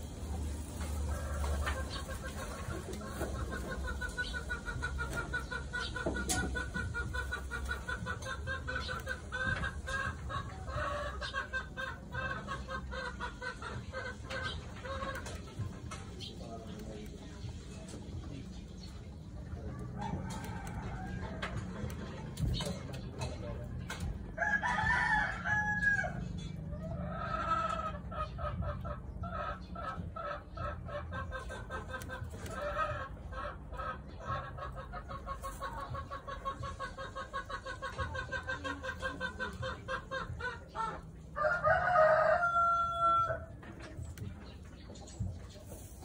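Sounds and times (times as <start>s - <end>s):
chickens clucking: 0.0s - 46.0s
rooster crowing: 24.4s - 26.2s, 41.4s - 43.5s.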